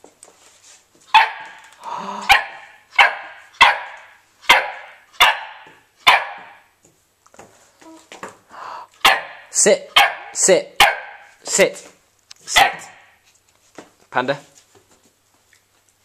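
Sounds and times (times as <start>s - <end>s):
puppy yapping: 1.1s - 6.7s, 9.0s - 11.4s, 12.4s - 13.2s.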